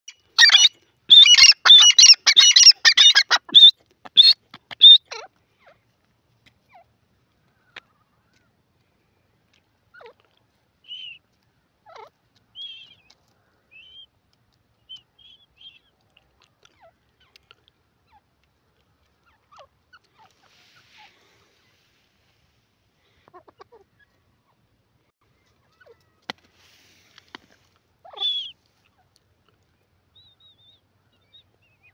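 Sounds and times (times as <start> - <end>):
grey francolin calling: 0.1 - 5.3, 28.0 - 28.6.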